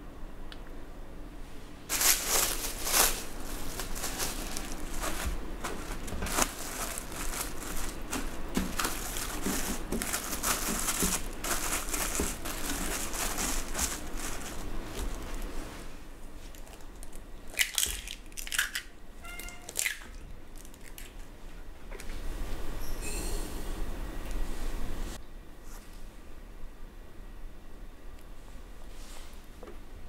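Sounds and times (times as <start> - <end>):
cling film crinkling: 1.9 - 15.6, 16.4 - 18.8.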